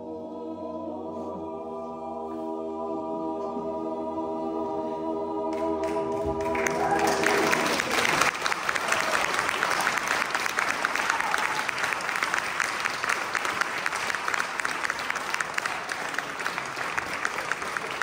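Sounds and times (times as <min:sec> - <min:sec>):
audience applauding: 0:05.5 - 0:18.0
close hands clapping steadily: 0:05.5 - 0:18.0.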